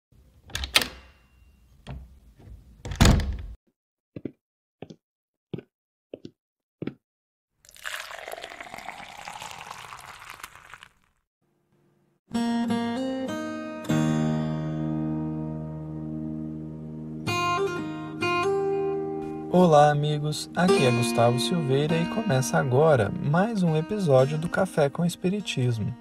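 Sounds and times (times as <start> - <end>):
liquid pouring into a cup: 7.6 - 11.1.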